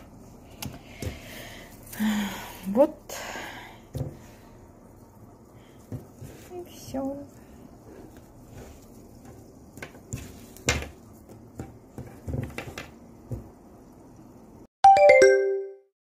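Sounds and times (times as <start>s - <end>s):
bell-like chime notes: 14.8s - 15.9s.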